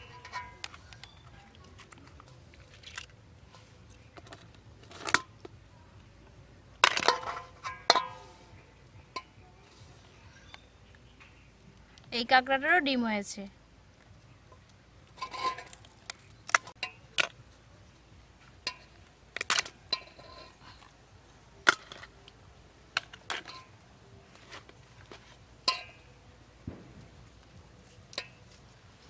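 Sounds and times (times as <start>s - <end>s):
crab shells cracking: 0.5s - 3.2s, 15.4s - 17.4s.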